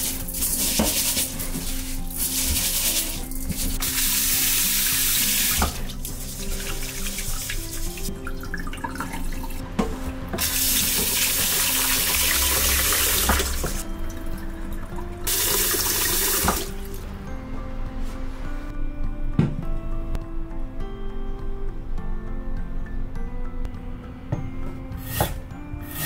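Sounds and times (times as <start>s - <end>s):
rice sloshed in a metal bowl: 0.0s - 5.2s
background music: 0.0s - 26.0s
tap running: 0.4s - 9.2s, 9.8s - 13.8s, 15.3s - 16.8s.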